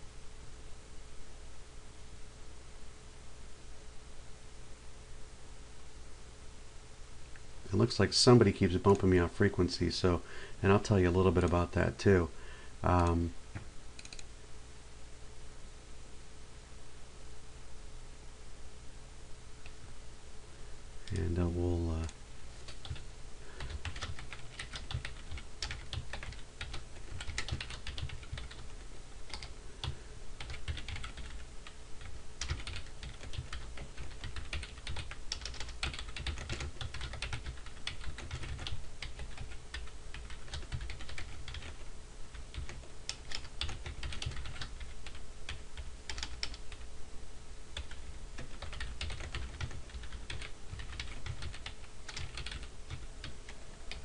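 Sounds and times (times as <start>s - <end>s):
keyboard keystrokes clicking: 47.8s - 53.0s.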